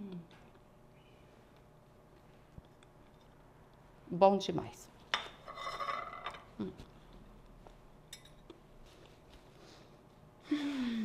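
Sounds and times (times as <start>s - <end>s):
person humming: 0.0s - 0.4s, 6.6s - 6.9s.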